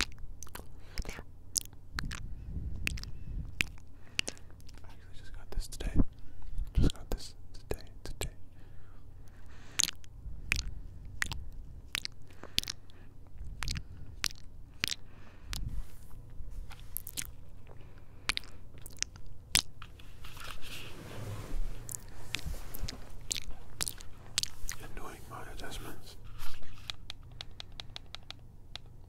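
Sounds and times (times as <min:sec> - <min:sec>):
wet lip kisses on microphone: 0:00.0 - 0:04.8.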